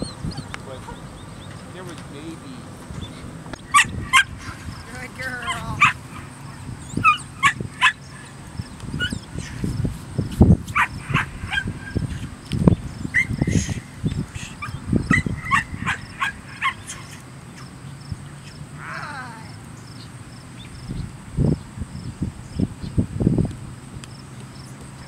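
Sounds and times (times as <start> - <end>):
puppy barking and yipping: 0.0 - 1.1, 3.6 - 8.3, 9.0 - 9.6, 10.7 - 12.2, 13.1 - 13.8, 14.5 - 17.2
dull low thumps: 0.0 - 7.8.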